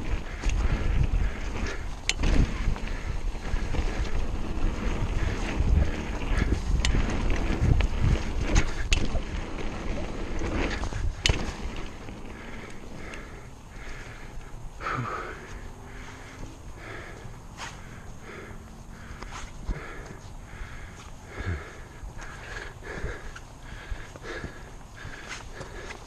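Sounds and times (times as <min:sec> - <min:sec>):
wind buffeting microphone: 0:00.0 - 0:14.9
bike clacking and rattling: 0:00.0 - 0:26.0
tyres rumbling over dirt: 0:00.0 - 0:26.0.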